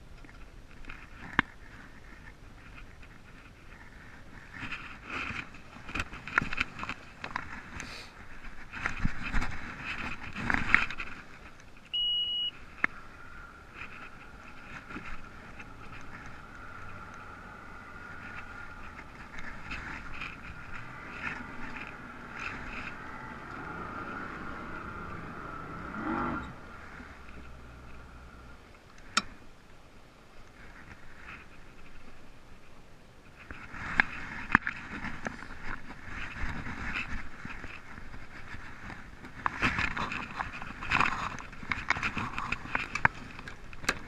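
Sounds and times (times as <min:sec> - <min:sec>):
faint steady whine: 0:00.0 - 0:44.0
short beep: 0:11.9 - 0:12.6.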